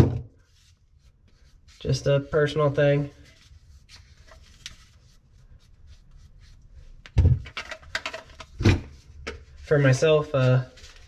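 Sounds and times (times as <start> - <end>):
plastic pipe clicks and rubbing: 7.0 - 9.5.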